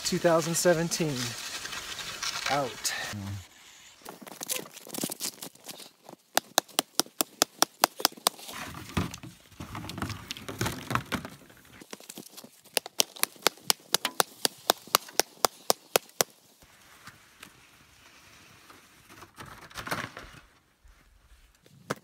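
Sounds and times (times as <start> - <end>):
rotten wood crunching and cracking: 4.0 - 16.3.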